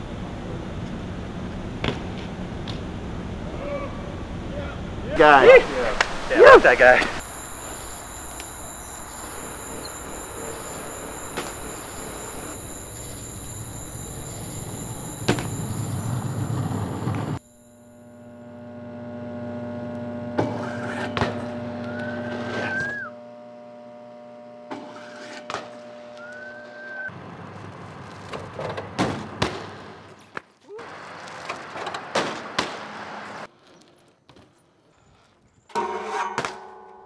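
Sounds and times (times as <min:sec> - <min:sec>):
steady hum: 0:00.0 - 0:27.1
bike rolling: 0:04.3 - 0:17.7, 0:27.1 - 0:35.7
high squeal: 0:07.2 - 0:17.4, 0:21.8 - 0:23.1
bike landings and crashes: 0:31.0 - 0:32.9, 0:35.7 - 0:37.0.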